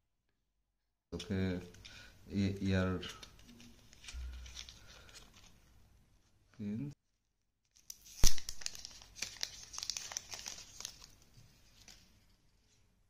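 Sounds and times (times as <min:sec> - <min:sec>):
plastic film peeling and crinkling: 0:03.0 - 0:05.7, 0:07.7 - 0:12.3
plastic film sharp crack: 0:07.8 - 0:11.2.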